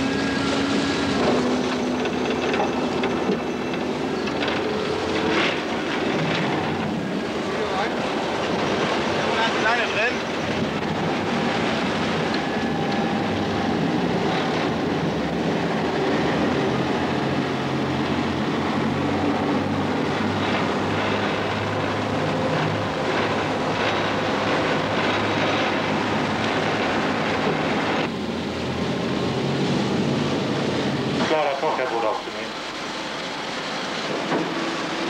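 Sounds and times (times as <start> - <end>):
boat engine running: 0.0 - 35.0
rushing water: 0.0 - 35.0
wind: 0.0 - 35.0.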